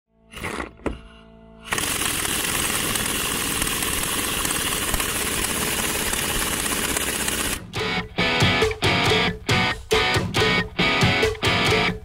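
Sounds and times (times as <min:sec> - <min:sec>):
impact wrench rattling: 0:01.7 - 0:07.6.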